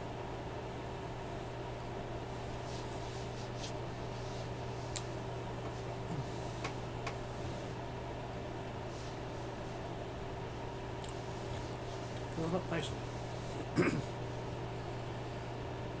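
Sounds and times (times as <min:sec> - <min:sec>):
low electrical hum: 0:00.0 - 0:16.0
hands rubbing skin: 0:02.5 - 0:07.8.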